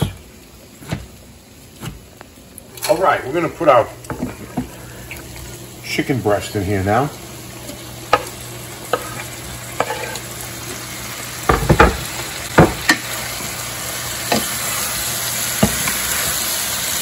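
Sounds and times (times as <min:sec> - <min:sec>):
chicken sizzling in a pan: 0:00.0 - 0:17.0
wood knocking against a pan: 0:04.1 - 0:04.8, 0:11.4 - 0:13.0, 0:15.6 - 0:16.0.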